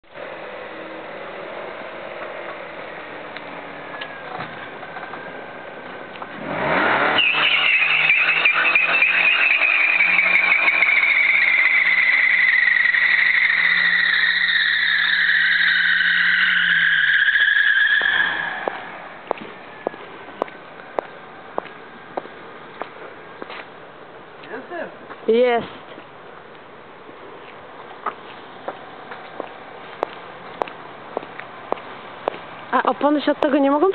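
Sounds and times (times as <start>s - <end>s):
car engine revving: 6.1s - 20.0s
tyre screech: 6.4s - 19.1s.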